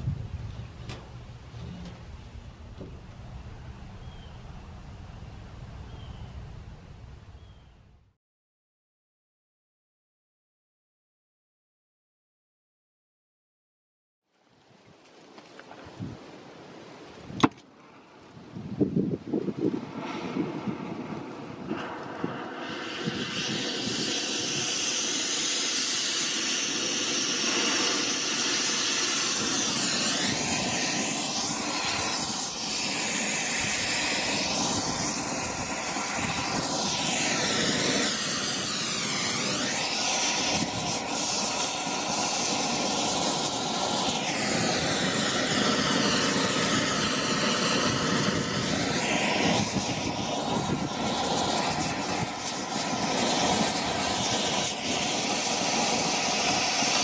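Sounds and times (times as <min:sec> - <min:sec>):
torch flame hissing: 0:19.2 - 0:57.0.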